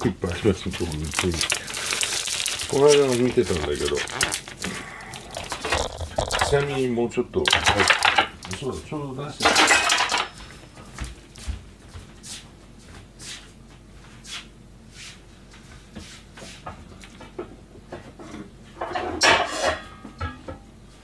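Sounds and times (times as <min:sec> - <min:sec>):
kitchenware knocks and clicks: 0:09.4 - 0:10.5.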